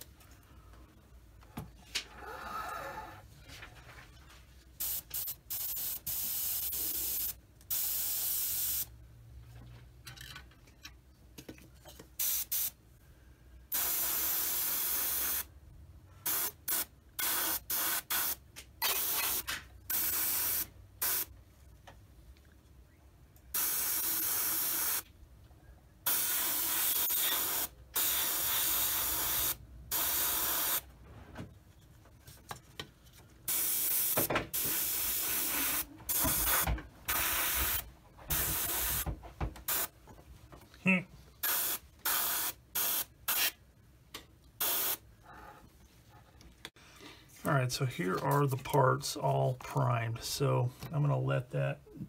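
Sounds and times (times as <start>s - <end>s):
airbrush hissing bursts: 4.8s - 8.9s, 13.7s - 15.5s, 16.2s - 21.3s, 23.5s - 25.1s, 26.1s - 30.9s, 33.5s - 39.0s, 41.4s - 43.6s, 44.6s - 45.0s.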